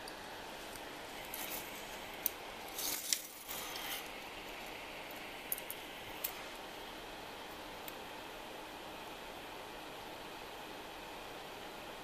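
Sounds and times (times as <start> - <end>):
flux hissing: 0.0 - 9.3
small fan whooshing: 0.0 - 12.0.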